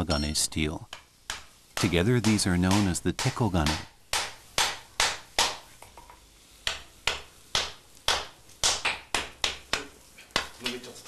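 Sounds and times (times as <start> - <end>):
hammer striking hot steel on anvil: 0.1 - 5.6.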